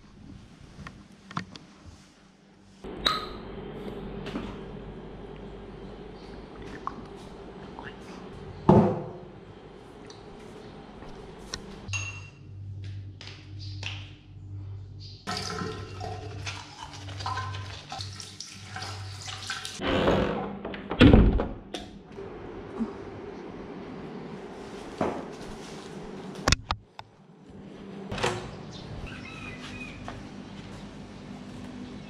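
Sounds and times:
low hum: 0:02.8 - 0:15.3
toilet flushing: 0:15.3 - 0:19.8
water running at a sink: 0:15.3 - 0:19.8.

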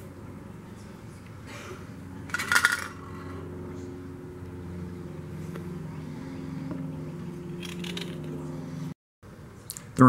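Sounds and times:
low hum with held tones: 0:00.0 - 0:10.0
metal parts clattering on wood: 0:02.3 - 0:02.9.

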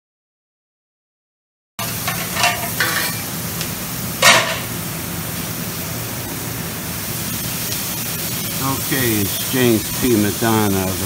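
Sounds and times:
food sizzling on griddle: 0:01.8 - 0:11.0
metal spatulas scraping and clanking: 0:02.0 - 0:03.3.

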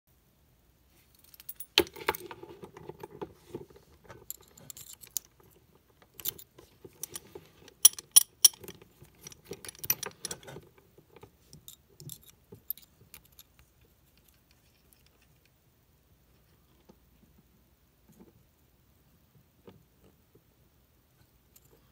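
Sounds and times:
padlock and chain rattling: 0:01.2 - 0:02.0, 0:04.1 - 0:10.5, 0:11.6 - 0:15.4.

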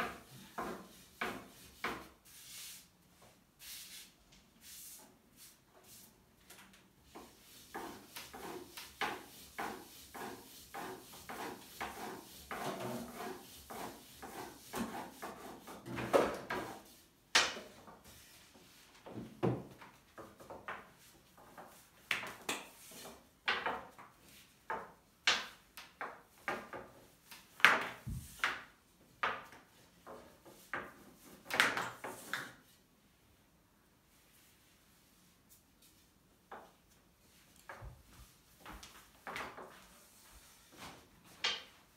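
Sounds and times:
hands rubbing dough: 0:07.2 - 0:15.8.

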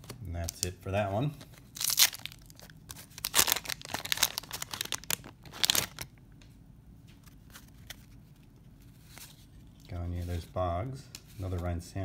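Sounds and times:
paper wrapper tearing: 0:01.4 - 0:06.1
faint rustles of cards: 0:02.6 - 0:12.0.

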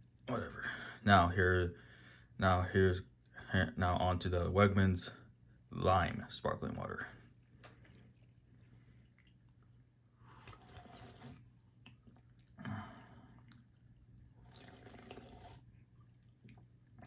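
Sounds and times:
fizzy sips from a can: 0:10.2 - 0:11.5, 0:14.4 - 0:15.7.

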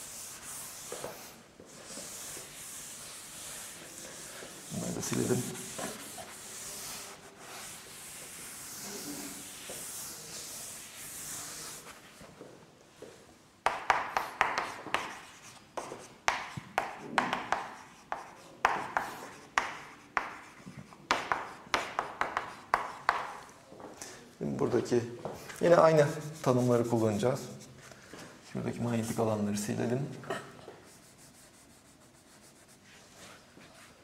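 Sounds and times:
eraser rubbing on board: 0:00.0 - 0:12.0, 0:13.8 - 0:23.5, 0:25.8 - 0:27.7
writing taps and scratches on board: 0:13.6 - 0:23.5.

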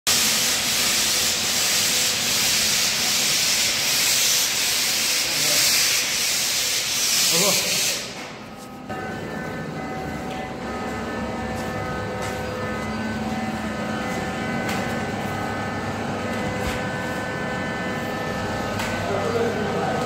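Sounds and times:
spray machine motor humming: 0:08.9 - 0:20.0.

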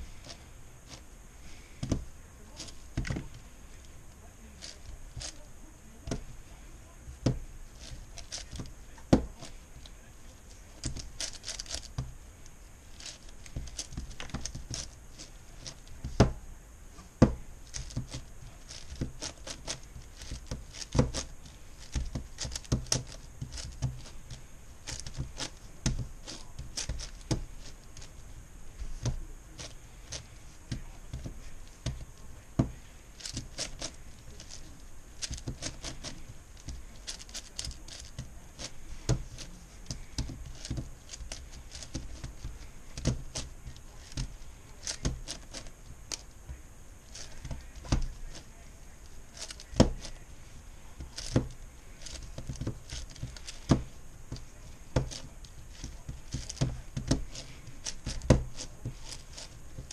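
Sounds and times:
puzzle cube clicking and clacking: 0:10.8 - 0:12.1, 0:17.7 - 0:28.2.

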